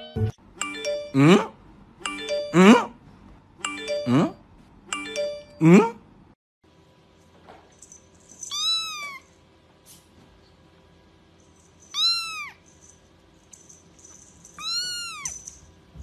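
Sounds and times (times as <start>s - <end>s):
kitten meowing: 8.5s - 9.2s, 11.9s - 12.6s, 14.6s - 15.4s.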